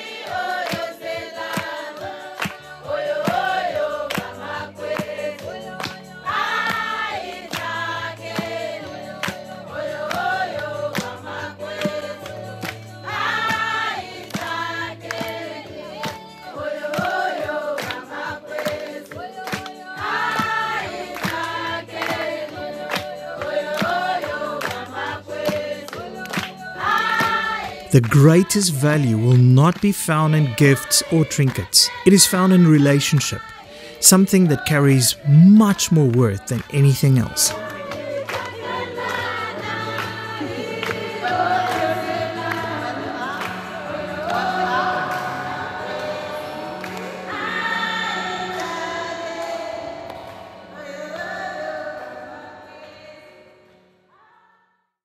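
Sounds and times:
congregation singing: 0.0 - 53.8
hand claps: 0.6 - 6.0, 7.5 - 7.8, 9.2 - 9.4, 10.9 - 12.8, 13.4 - 15.4, 16.9 - 30.6, 35.6 - 39.4, 40.0 - 41.9.

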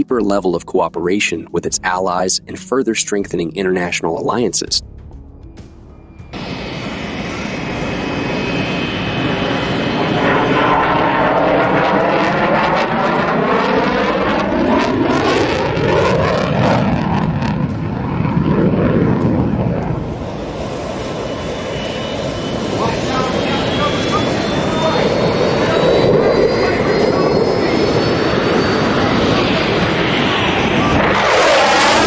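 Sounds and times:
fighter jet roar with afterburner: 6.4 - 32.0.

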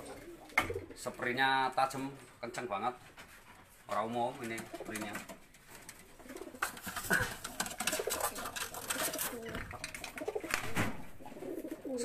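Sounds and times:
pigeons cooing: 0.0 - 1.1, 6.0 - 12.0
rustling against wire cage: 3.0 - 12.0.

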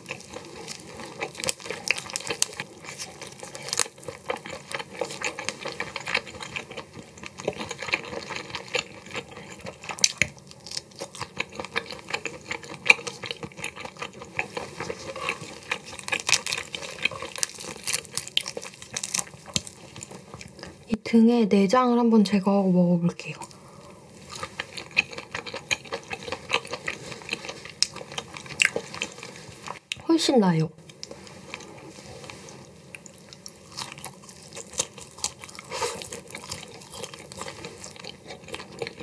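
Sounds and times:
shrimp shells peeling wet crackles: 0.0 - 6.8, 7.4 - 20.0
chewing: 0.0 - 20.8, 23.4 - 30.0, 30.9 - 39.0.

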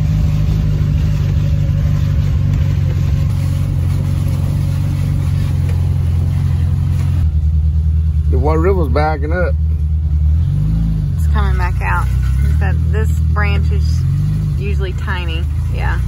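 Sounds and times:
vehicle engine droning: 0.0 - 16.0.

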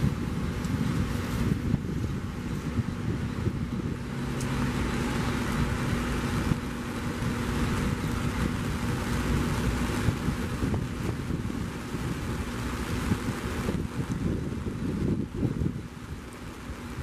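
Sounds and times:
jet engines idling: 0.0 - 15.2.

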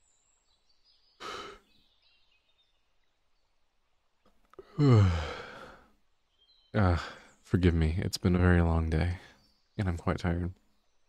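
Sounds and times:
man exhaling: 1.2 - 1.7, 4.6 - 5.9
man sighing: 1.2 - 1.8, 4.5 - 6.0.

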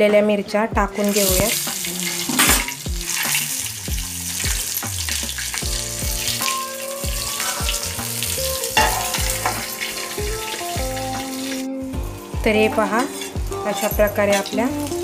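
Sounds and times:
background music with beat: 0.0 - 15.0
peppers sizzling in oil: 0.9 - 15.0.

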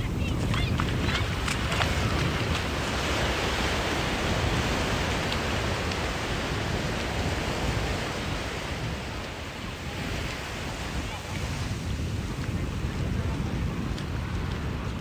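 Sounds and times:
ocean surf washing up beach: 0.0 - 15.0
wind rumbling on microphone: 0.0 - 15.0.

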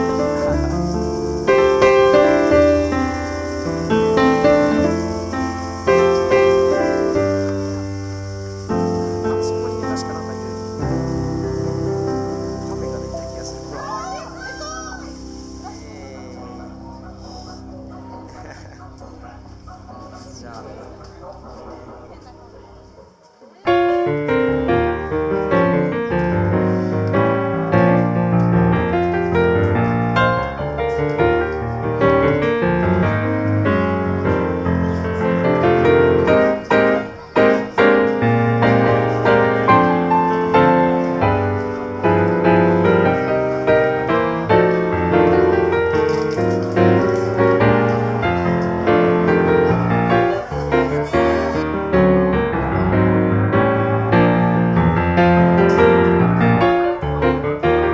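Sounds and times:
piano background music: 0.0 - 57.9.

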